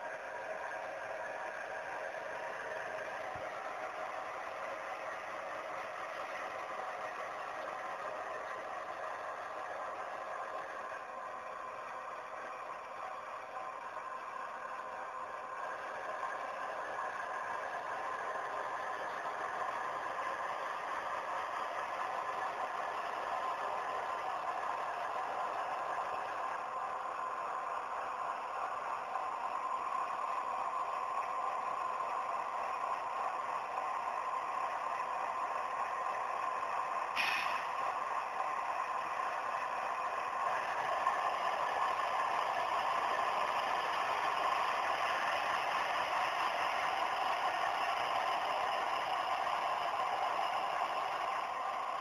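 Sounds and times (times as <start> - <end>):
model locomotive motor whine and rattle: 0.0 - 52.0
brief sharp sound: 37.2 - 37.7.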